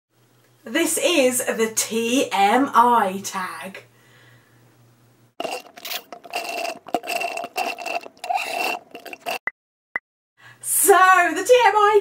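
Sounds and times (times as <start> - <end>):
slurping through a straw: 5.4 - 9.4.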